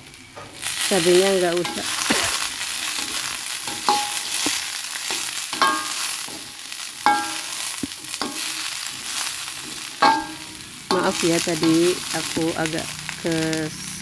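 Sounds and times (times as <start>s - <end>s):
food sizzling in a wok: 0.0s - 14.0s
spatula scraping: 1.6s - 12.5s
spatula clinking against pan: 3.7s - 9.0s, 9.6s - 12.0s.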